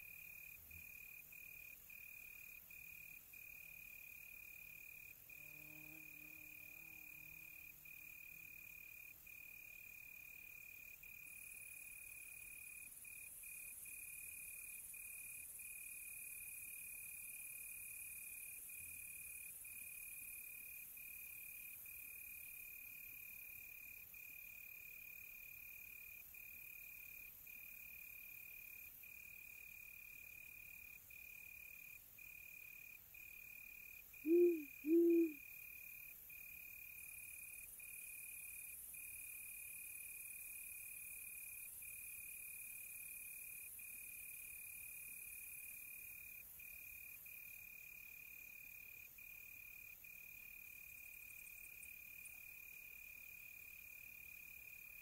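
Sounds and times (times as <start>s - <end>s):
cricket chirping: 0.0s - 55.0s
faint high insect hiss: 0.0s - 55.0s
owl hooting: 34.2s - 35.4s.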